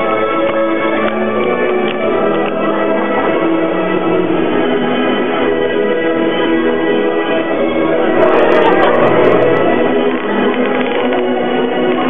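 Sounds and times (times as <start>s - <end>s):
carousel music: 0.0s - 12.0s.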